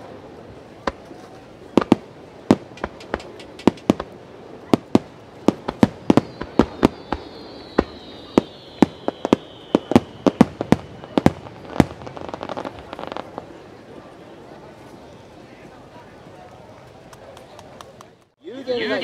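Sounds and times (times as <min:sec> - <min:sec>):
firework shell bursts: 0:01.8 - 0:04.1, 0:05.6 - 0:13.0
faint falling firework whistle: 0:05.8 - 0:12.9.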